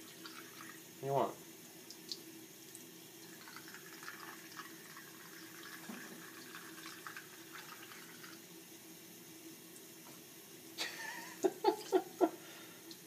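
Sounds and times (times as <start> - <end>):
tap water running into sink: 0.0 - 1.0, 1.8 - 8.6
water drips and splashes: 1.8 - 8.4.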